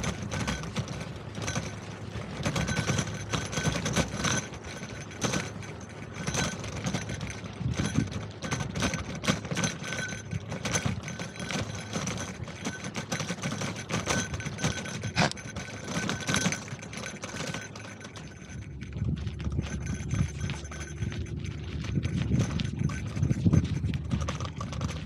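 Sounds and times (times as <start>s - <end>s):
bicycle rattling: 0.0s - 25.0s.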